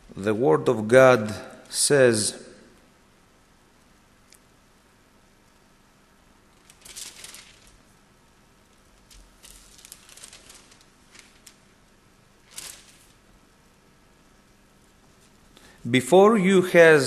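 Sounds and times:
thin pages rustling: 0:06.6 - 0:07.9, 0:08.8 - 0:11.8, 0:12.4 - 0:13.4.

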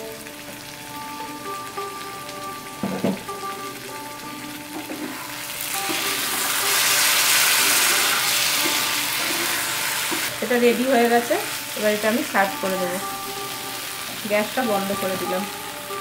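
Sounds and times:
curry sizzling in a pan: 0:00.0 - 0:16.0
spatula knocking on pan: 0:02.8 - 0:03.4.

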